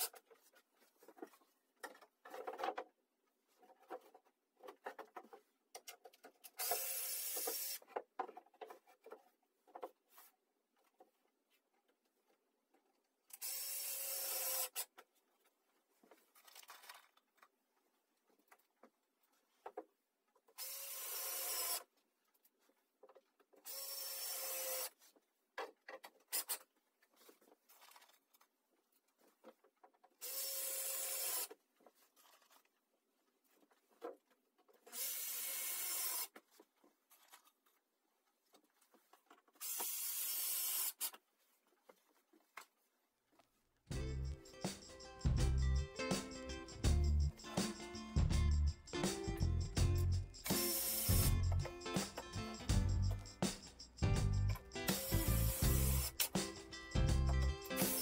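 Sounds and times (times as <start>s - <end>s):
cordless drill driving screws: 6.6s - 7.8s, 13.4s - 14.9s, 20.6s - 21.9s, 23.7s - 25.0s, 30.2s - 31.6s, 34.8s - 36.3s, 39.6s - 41.2s, 50.5s - 51.4s, 54.9s - 56.3s, 57.8s - 58.0s.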